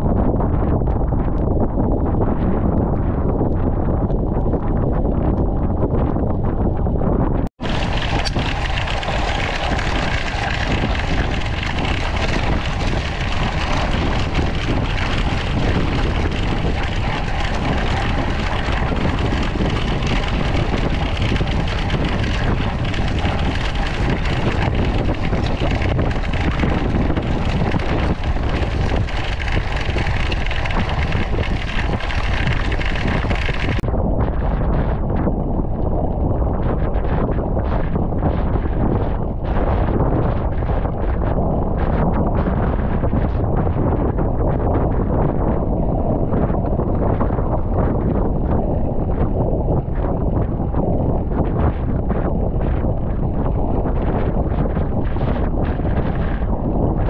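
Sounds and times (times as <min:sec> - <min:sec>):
deep rumble: 0:00.0 - 0:57.0
wind buffeting microphone: 0:00.0 - 0:57.0
bike rattling over cobblestones: 0:07.6 - 0:33.8.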